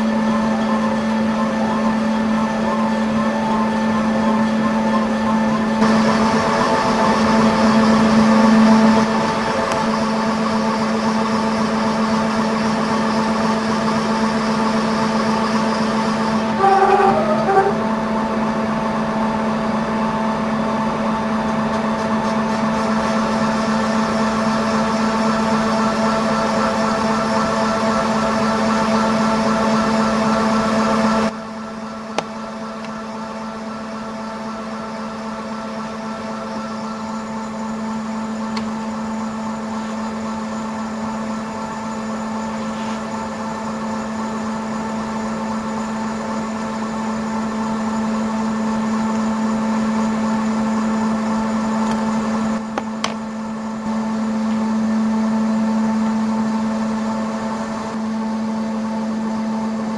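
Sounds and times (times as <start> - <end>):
milling machine spindle humming: 0.0 - 19.8.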